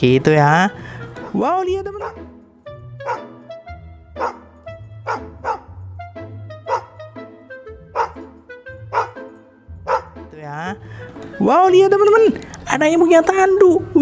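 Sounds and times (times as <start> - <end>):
background music: 0.0 - 14.0
small dog barking: 2.0 - 2.2, 3.0 - 3.3, 4.2 - 4.4, 5.0 - 5.7, 6.7 - 7.0, 8.0 - 8.2, 8.9 - 9.2, 9.8 - 10.2.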